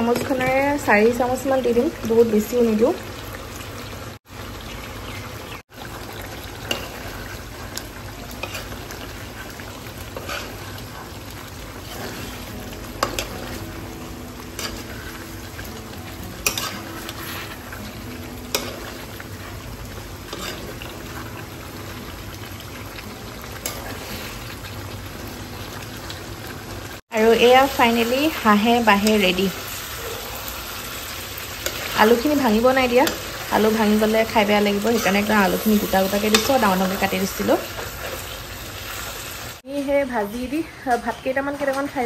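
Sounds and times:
meat and potatoes sizzling in a pan: 0.0 - 42.0
spatula scraping a pan: 8.4 - 11.1, 11.8 - 13.6, 16.4 - 19.6, 20.3 - 20.9.

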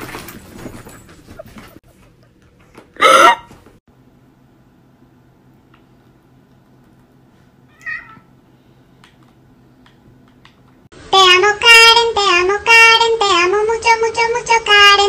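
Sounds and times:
cat meowing: 7.7 - 8.3.

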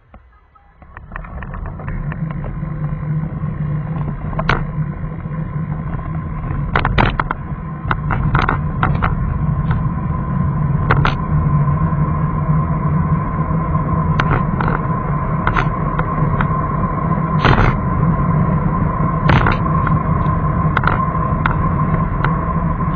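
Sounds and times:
sharp clicks and rattles: 0.0 - 11.9, 13.9 - 22.9
car engine and road noise: 0.0 - 22.9.

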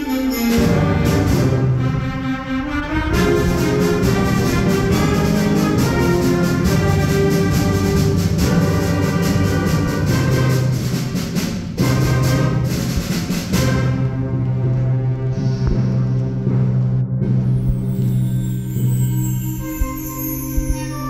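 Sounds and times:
concert band playing: 0.0 - 17.9
percussion beat: 3.2 - 14.0, 15.5 - 21.0.

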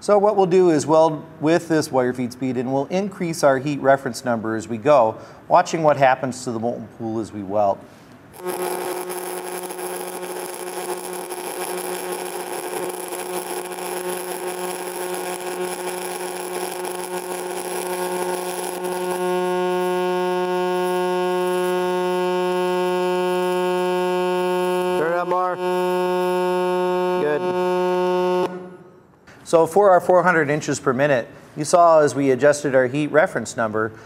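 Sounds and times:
welding spatter: 8.3 - 28.7
welding arc crackling and buzzing: 8.3 - 28.9.

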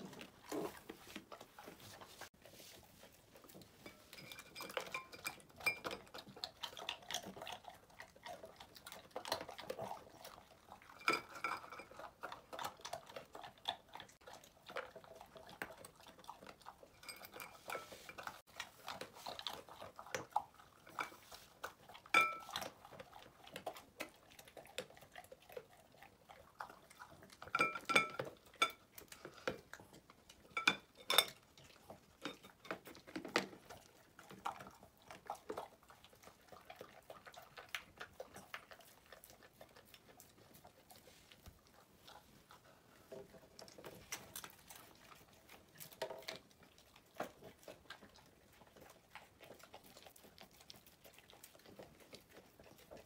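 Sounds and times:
dogs licking from bowls: 0.0 - 53.0
clinks against ceramic dishes: 3.8 - 6.2, 11.0 - 12.0, 17.0 - 18.0, 22.1 - 22.5, 27.5 - 28.8, 30.5 - 31.4.

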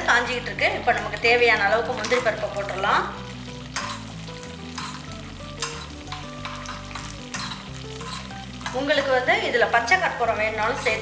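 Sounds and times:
nuts sizzling in hot fat: 0.0 - 11.0
metal spoon scraping pan: 3.7 - 9.2.

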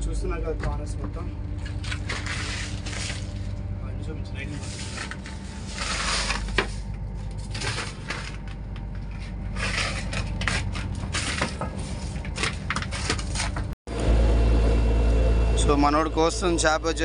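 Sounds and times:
boat engine humming: 0.0 - 17.0
crushed ice crunching: 1.5 - 13.7.

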